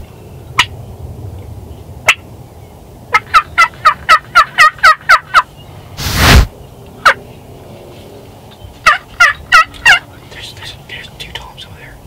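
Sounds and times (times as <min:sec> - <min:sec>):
turkey call yelps: 0:03.1 - 0:05.5, 0:08.8 - 0:10.0.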